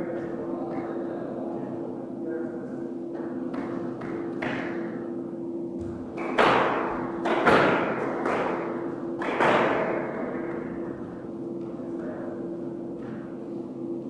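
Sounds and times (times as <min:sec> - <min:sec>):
steady low hum: 0:00.0 - 0:14.0
squash ball hits echoing: 0:03.2 - 0:05.2, 0:05.8 - 0:12.1.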